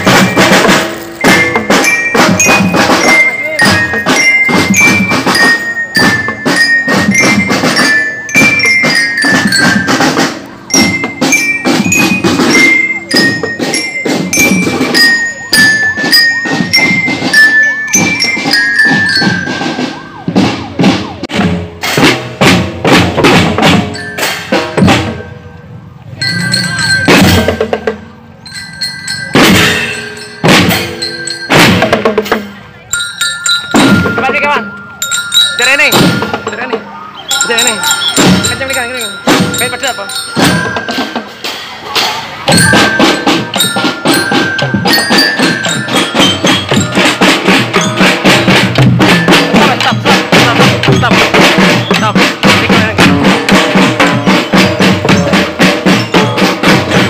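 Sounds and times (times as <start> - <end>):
glockenspiel melody: 0.0 - 21.2, 22.8 - 57.0
snare and bass drums: 0.0 - 25.4, 26.1 - 57.0.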